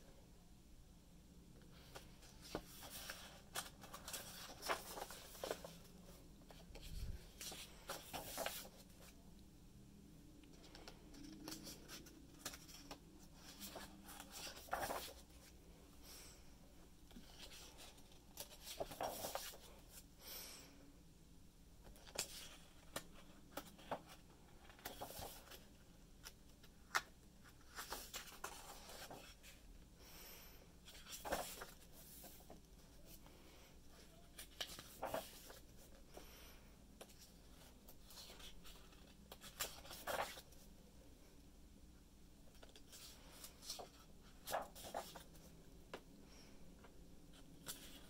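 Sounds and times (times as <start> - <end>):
book pages turning: 1.8 - 9.2, 10.5 - 15.5, 17.1 - 20.0, 21.8 - 29.6, 30.9 - 32.9, 34.3 - 35.9, 37.0 - 40.7, 42.5 - 45.5, 47.3 - 48.0.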